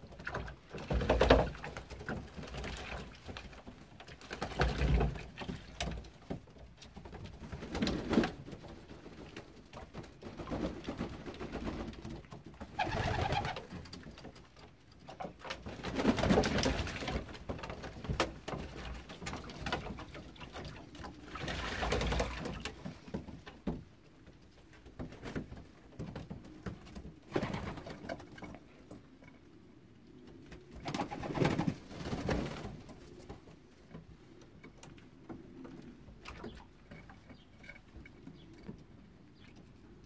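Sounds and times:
wing-flapping and water splashing: 0.0 - 23.5, 30.8 - 33.0.

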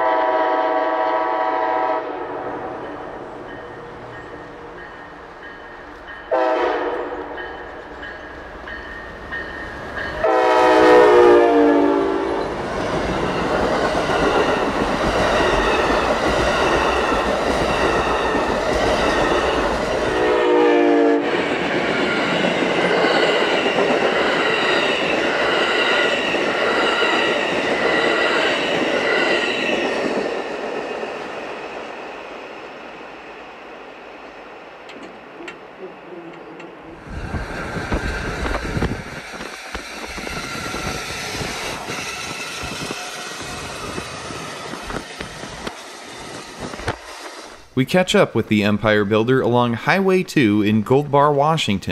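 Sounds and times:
train horn blasts: 0.0 - 2.9, 6.3 - 7.4, 10.2 - 12.4, 20.1 - 21.4
train wheels rolling on rails: 0.0 - 48.3.

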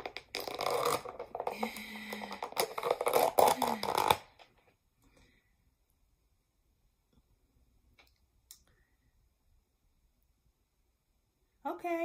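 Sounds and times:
plastic lid crackling and snapping: 0.0 - 4.5.

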